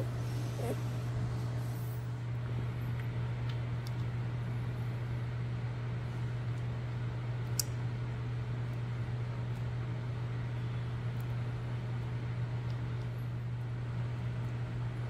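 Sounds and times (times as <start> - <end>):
low machine hum with hiss: 0.0 - 15.0.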